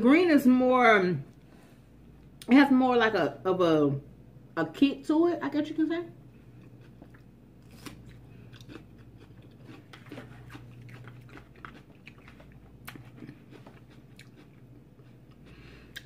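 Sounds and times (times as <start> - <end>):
person chewing crunchy pepper: 6.4 - 16.0.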